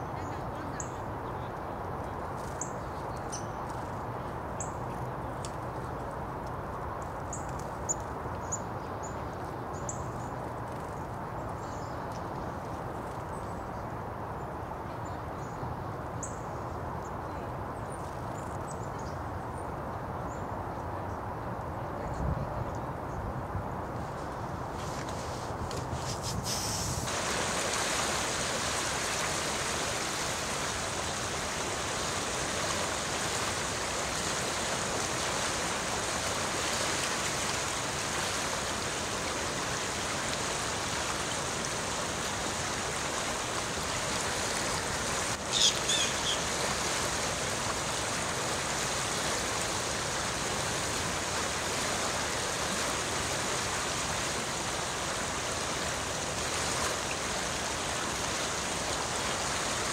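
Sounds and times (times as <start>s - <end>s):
creek running over rocks: 23.9s - 59.9s.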